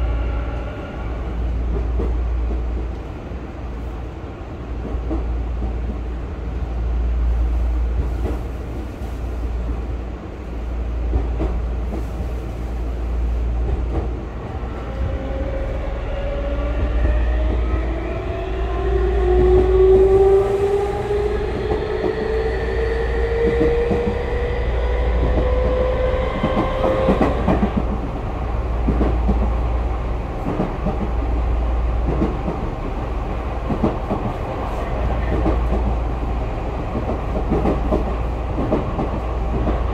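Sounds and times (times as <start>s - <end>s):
train wheels rumbling: 0.0s - 39.9s.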